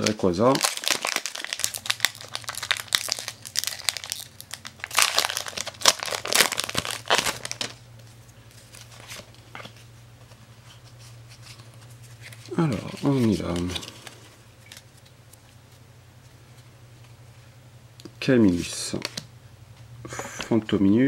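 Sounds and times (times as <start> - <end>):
foil wrapper crinkling: 0.0 - 7.8.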